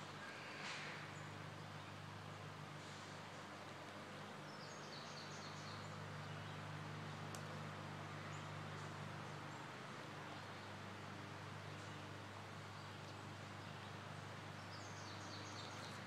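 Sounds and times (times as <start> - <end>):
faint background hum: 0.0 - 16.0
bird chirps: 14.6 - 16.0.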